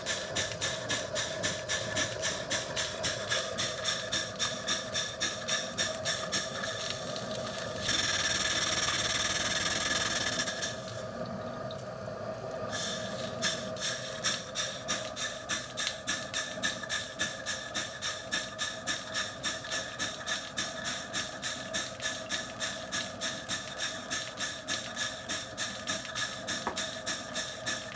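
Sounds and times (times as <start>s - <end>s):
loud steam hiss: 12.7s - 18.2s.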